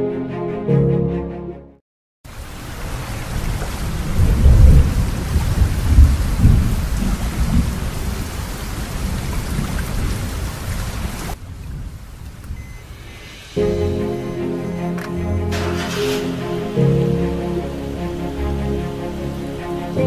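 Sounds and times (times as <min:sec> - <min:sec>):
heavy rain pouring: 0:02.3 - 0:20.0
rolling thunder: 0:03.4 - 0:10.3.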